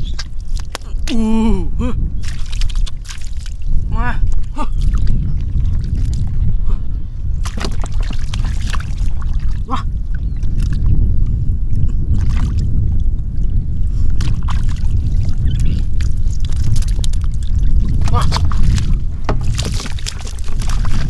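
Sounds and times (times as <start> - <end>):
steady low rumble: 0.0 - 21.0
splashing in muddy water: 2.2 - 6.6, 7.4 - 11.0, 12.0 - 12.7, 14.1 - 21.0.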